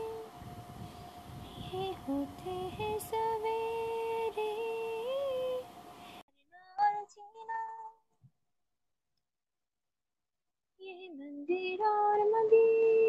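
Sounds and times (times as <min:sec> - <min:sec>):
woman singing slow melody: 0:00.0 - 0:00.5, 0:01.5 - 0:08.0, 0:10.8 - 0:13.0.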